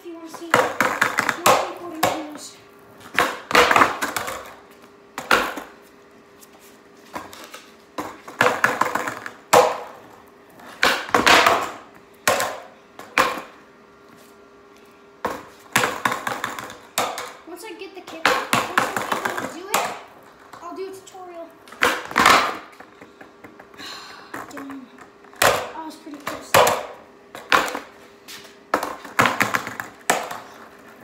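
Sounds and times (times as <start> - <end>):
skateboard wheels rolling: 0.3 - 5.8, 6.5 - 13.6, 15.3 - 17.4, 18.2 - 21.0, 21.7 - 23.6, 28.7 - 31.0
skateboard deck clacking: 0.4 - 2.4, 3.1 - 4.6, 8.0 - 10.0, 10.8 - 13.5, 15.3 - 17.4, 18.1 - 20.1, 21.7 - 22.7, 28.7 - 30.9.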